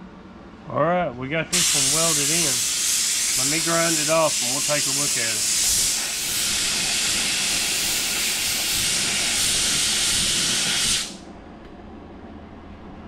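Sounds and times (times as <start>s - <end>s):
air grinder hissing: 1.5s - 11.2s.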